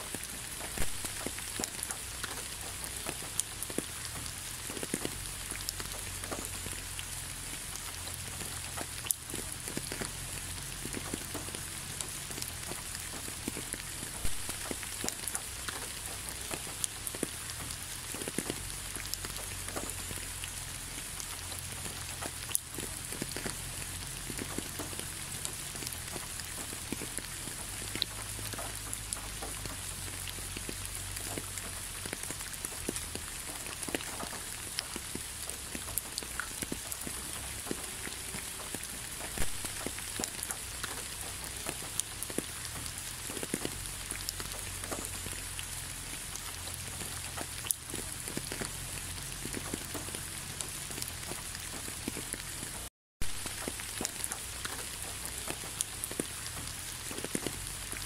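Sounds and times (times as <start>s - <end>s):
rain hissing: 0.0s - 58.0s
raindrops ticking: 0.0s - 58.0s.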